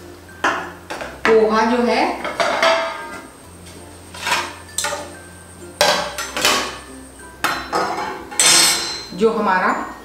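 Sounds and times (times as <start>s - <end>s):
metal utensils clinking on cookware: 2.2s - 3.2s, 4.1s - 5.2s, 5.8s - 6.8s, 7.4s - 9.3s.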